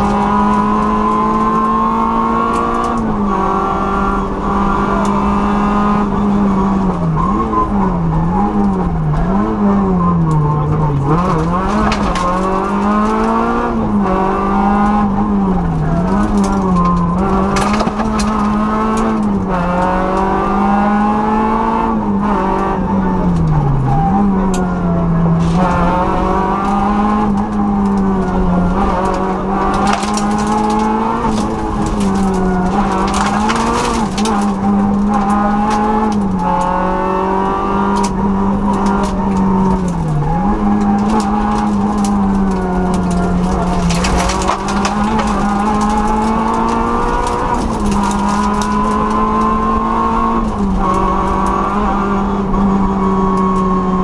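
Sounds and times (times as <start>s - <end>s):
car engine at high revs: 0.0s - 54.0s
rushing road noise: 0.0s - 54.0s.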